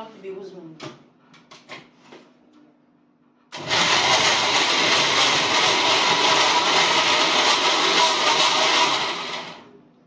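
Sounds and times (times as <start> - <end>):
electric blender running: 3.5 - 9.7.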